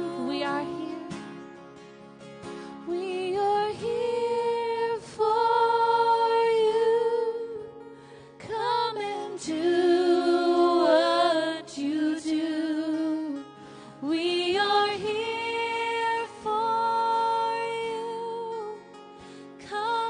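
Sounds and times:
acoustic guitars: 0.0s - 20.0s
voices singing: 3.0s - 7.8s, 8.4s - 13.2s, 14.2s - 18.8s.

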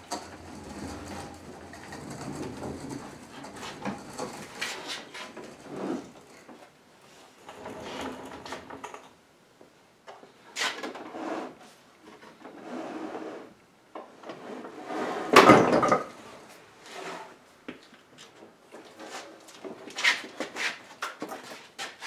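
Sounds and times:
wooden table slides scraping: 0.2s - 6.2s, 7.4s - 8.7s, 12.6s - 13.5s, 14.4s - 15.4s.

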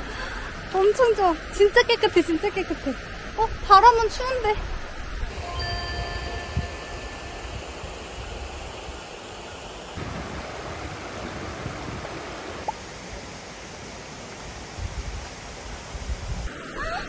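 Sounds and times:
wind gusts on microphone: 4.6s - 12.7s, 14.5s - 16.5s
stream water flowing: 5.3s - 16.7s.

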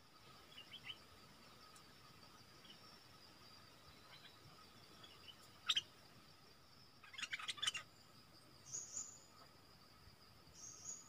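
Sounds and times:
insect drone: 0.0s - 11.0s
bird calling and chattering: 5.0s - 6.0s, 7.0s - 7.9s.

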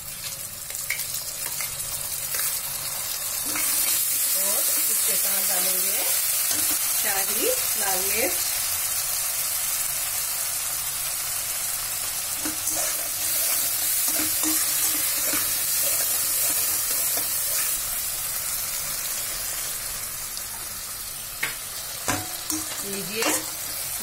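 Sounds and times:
masala sizzling in hot oil: 0.0s - 24.0s
spatula scraping pan: 12.4s - 17.8s.

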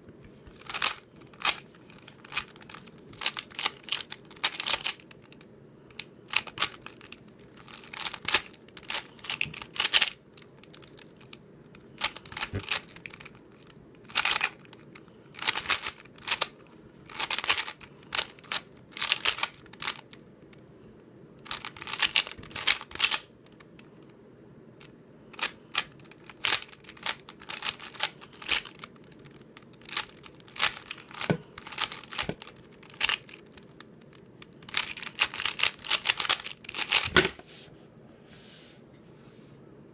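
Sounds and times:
puzzle cube clicking: 0.6s - 11.4s, 15.4s - 16.5s, 21.4s - 23.3s, 25.4s - 37.3s.

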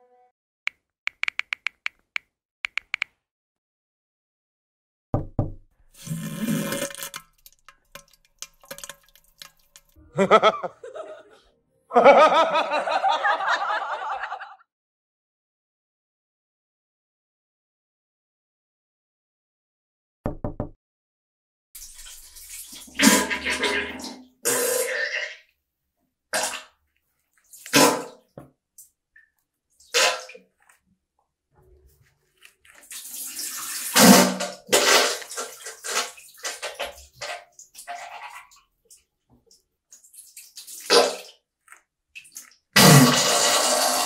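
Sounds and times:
wet sputtering fart noises: 5.9s - 7.6s, 42.8s - 44.0s
toilet flush: 5.9s - 10.0s, 21.8s - 25.4s, 32.9s - 38.5s, 42.8s - 44.0s.

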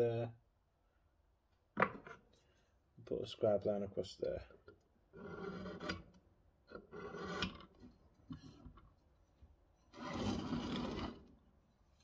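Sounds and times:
scriber scratching steel plate: 5.2s - 6.1s, 6.7s - 7.9s.

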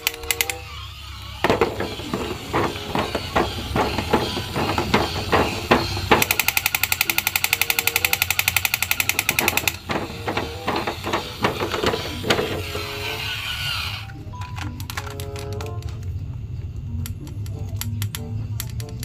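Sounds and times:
toy motor and gears clattering: 0.0s - 16.3s, 16.9s - 19.0s
electronic machine-gun sound effect: 6.1s - 9.8s.

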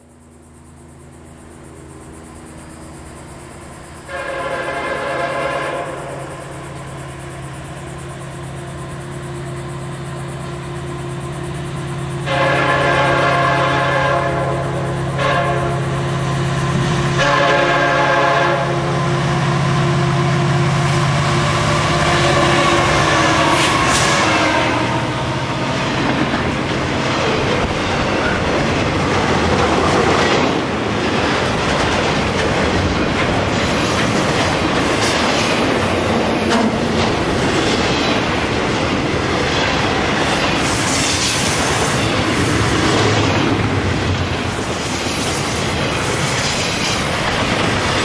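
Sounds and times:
diesel locomotive engines droning: 0.0s - 48.0s
locomotive horn chord: 4.1s - 6.2s, 12.2s - 15.9s, 17.1s - 19.4s, 21.4s - 25.8s.

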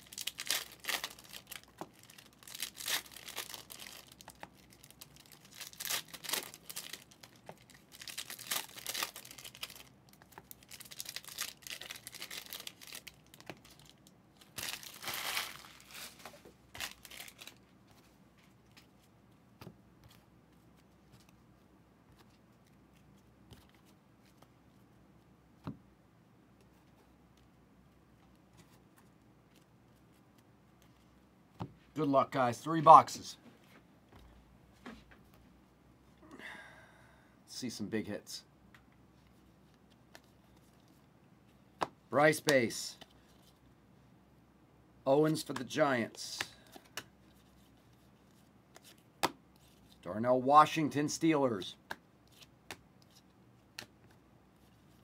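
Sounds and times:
wrappers ripping and crinkling: 0.0s - 17.6s.

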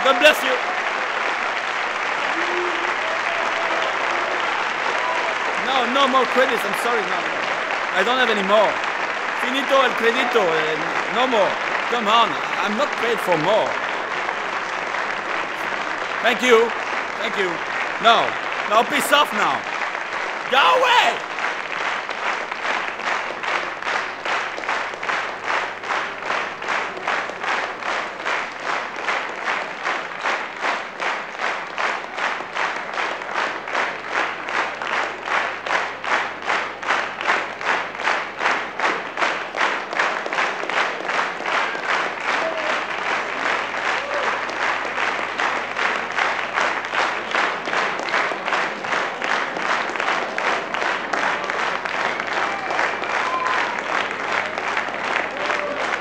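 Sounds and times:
audience clapping in unison: 0.0s - 56.0s.

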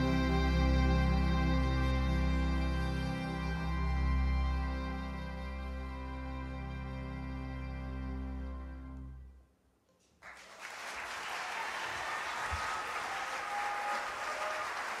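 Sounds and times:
audience applauding: 10.1s - 15.0s.

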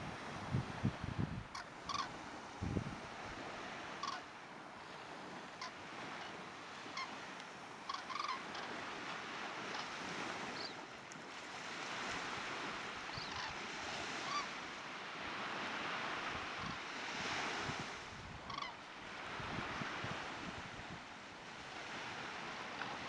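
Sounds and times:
wind on microphone: 0.0s - 4.2s, 15.2s - 23.0s
surf washing on beach: 0.0s - 23.0s
birds calling overhead: 1.5s - 2.2s, 3.9s - 4.3s, 5.5s - 9.0s, 9.6s - 10.8s, 13.0s - 14.6s, 18.4s - 18.8s.

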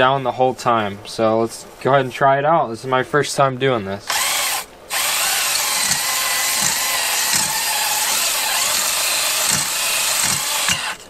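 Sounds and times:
drill whirring and scraping: 4.1s - 11.0s.

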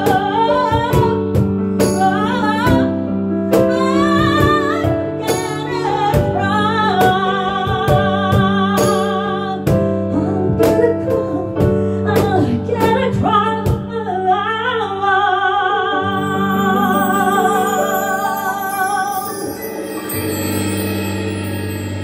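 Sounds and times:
woman singing with vibrato: 12.1s - 20.4s
keyboard: 15.6s - 22.0s
cymbal wash: 16.2s - 22.0s
drum and cymbal hits: 19.2s - 22.0s.

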